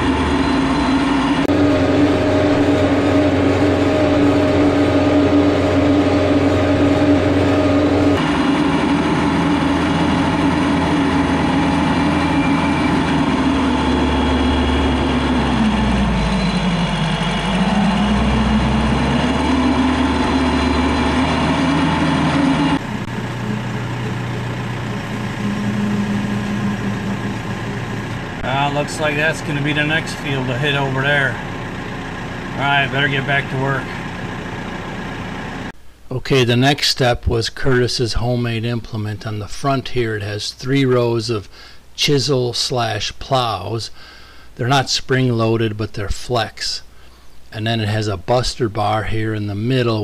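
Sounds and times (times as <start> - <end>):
smaller tractor engine: 0.0 - 35.8
tractor diesel engine under load: 0.0 - 35.8.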